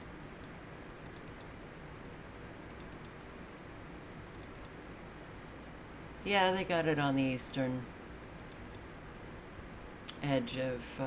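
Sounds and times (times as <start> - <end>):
computer mouse clicks: 0.0 - 1.6, 2.7 - 3.2, 4.3 - 4.8, 8.4 - 8.9
steady low hiss: 0.0 - 11.0.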